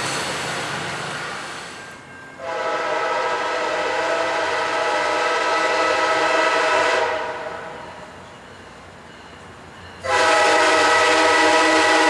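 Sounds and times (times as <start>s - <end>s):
locomotive air horn blast: 2.4s - 7.7s, 10.0s - 12.0s.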